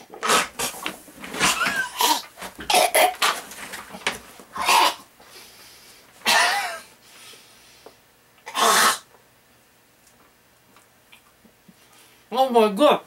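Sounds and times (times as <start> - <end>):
man coughing violently: 6.2 - 6.9.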